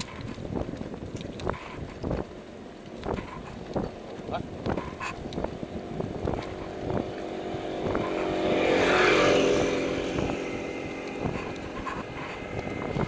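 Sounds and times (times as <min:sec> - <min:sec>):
bicycle knocks and rattles: 0:00.0 - 0:08.5
motor vehicle passing: 0:02.8 - 0:13.0.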